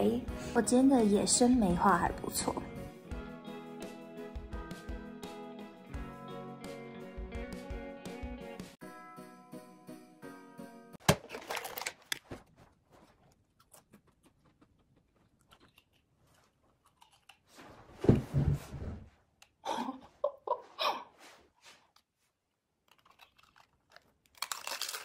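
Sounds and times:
potato chips crunching: 0:13.0 - 0:17.5, 0:22.8 - 0:25.0.

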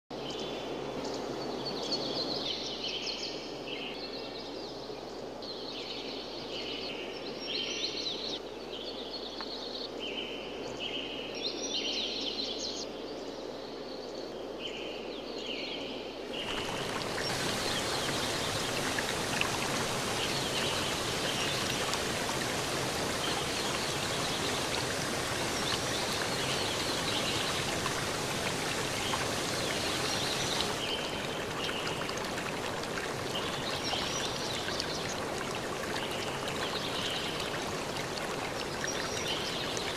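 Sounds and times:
flowing water: 0:16.3 - 0:39.9
hiss of rushing water: 0:16.3 - 0:39.9.

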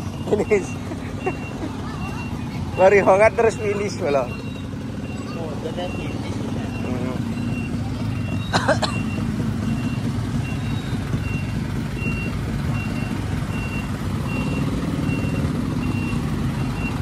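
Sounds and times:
truck engine rumble: 0:00.0 - 0:17.0
truck warning beeper: 0:00.0 - 0:17.0.

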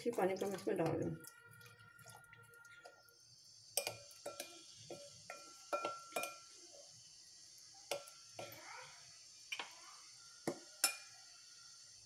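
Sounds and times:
spoon clinking on glass bowl: 0:03.8 - 0:04.5, 0:05.3 - 0:06.5.

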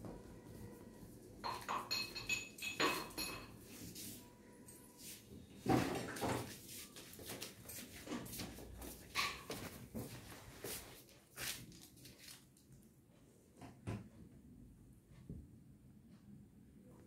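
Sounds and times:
metal object clinking: 0:01.4 - 0:03.6.

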